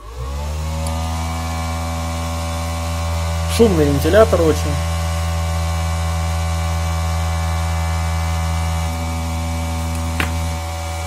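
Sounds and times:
cooling fan humming noisily: 0.0s - 11.0s.

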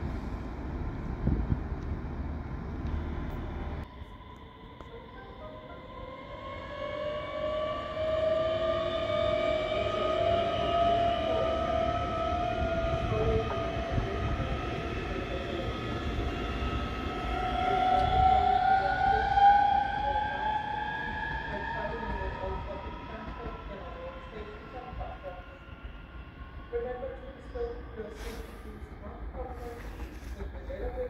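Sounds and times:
wheels rumbling on track: 0.0s - 3.8s.

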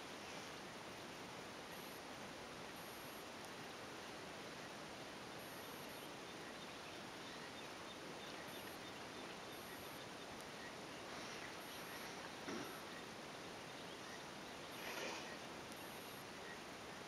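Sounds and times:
soft rustle: 0.0s - 2.3s, 7.1s - 13.2s, 13.9s - 17.0s
steady outdoor hiss: 0.0s - 17.0s.

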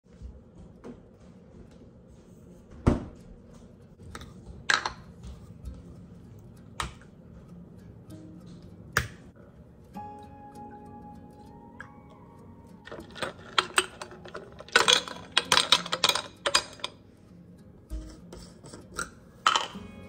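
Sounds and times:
background music: 3.9s - 20.0s.

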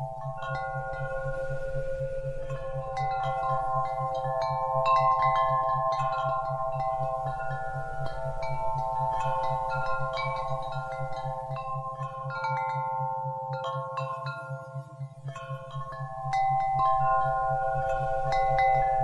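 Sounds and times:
wind chimes ringing: 0.0s - 19.0s
low pulsing tone: 15.0s - 19.0s.

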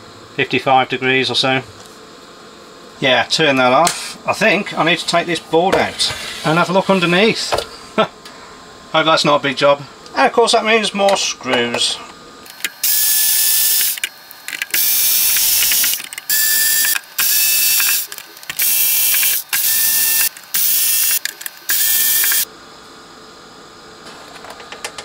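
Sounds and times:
electric screwdriver whining: 12.5s - 22.5s.

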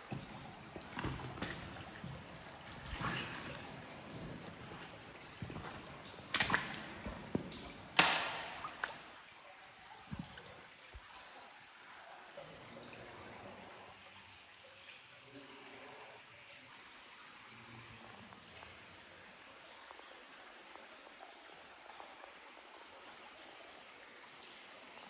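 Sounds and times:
water trickling and dripping: 0.0s - 25.0s.

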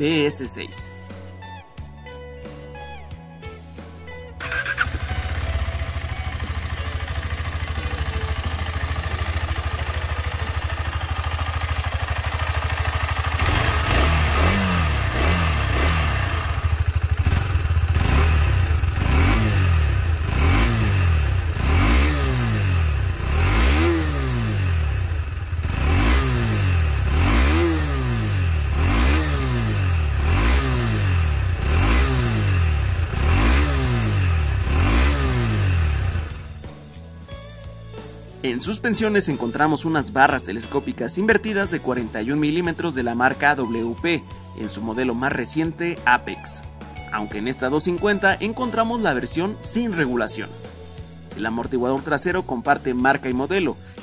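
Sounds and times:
motorcycle engine idling: 4.4s - 36.7s
motorcycle engine revving: 4.4s - 36.7s.

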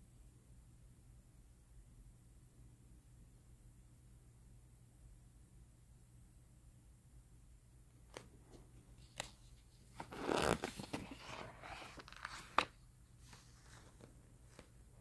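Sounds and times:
book pages rustling: 9.0s - 14.9s.

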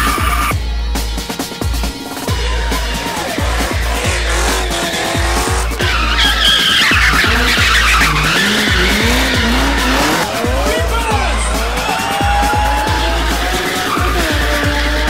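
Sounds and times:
electronic music with pulsing bass: 0.0s - 15.0s
car engine revving: 1.6s - 15.0s
tyres squealing: 2.0s - 15.0s.

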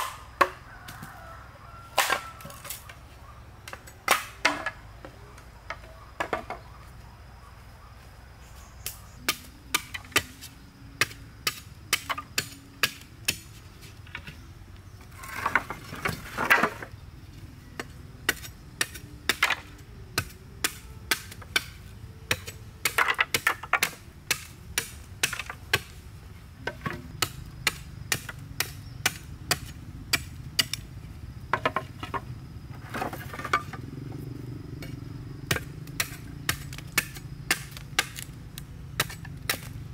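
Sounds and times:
knife chopping bamboo: 0.0s - 0.6s, 18.3s - 26.0s, 35.5s - 38.4s, 39.0s - 39.8s.

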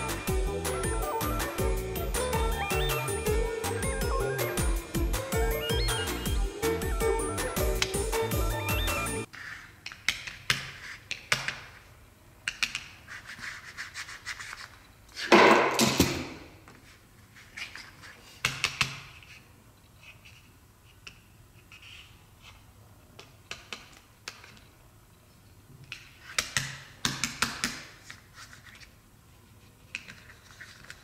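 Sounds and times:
plastic dolls clicking and rubbing: 9.3s - 14.8s, 17.4s - 24.7s, 25.8s - 29.0s, 29.7s - 31.0s.

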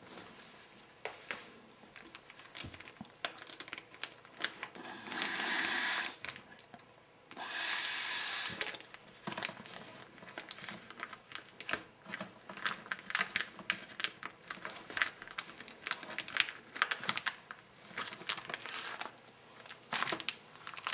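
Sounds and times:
plastic bag crinkling: 2.0s - 6.6s, 8.5s - 20.9s
air hissing through straw: 4.8s - 6.2s, 7.4s - 8.8s.

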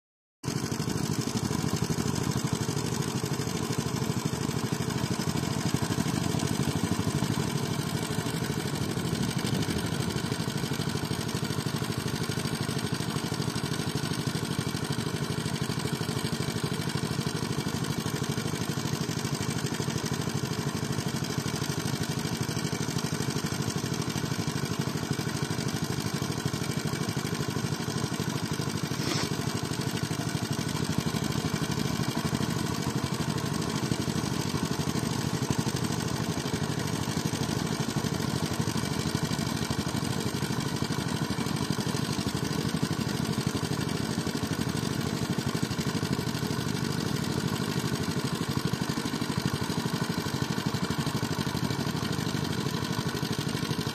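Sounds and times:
small diesel pump engine running: 0.4s - 53.9s
water gushing from pipe: 23.5s - 46.0s
distant tiller engine: 27.8s - 37.3s.

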